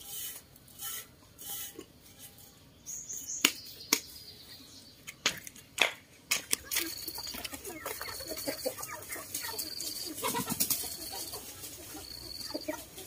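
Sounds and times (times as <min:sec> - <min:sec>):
sharp clinks against metal: 0:06.6 - 0:12.9.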